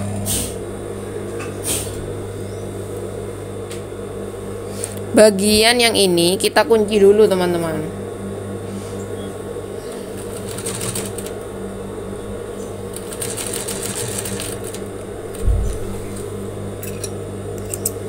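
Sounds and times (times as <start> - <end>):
sewing machine stitching: 10.2 - 11.3, 12.9 - 14.9
short low thump: 15.4 - 16.2.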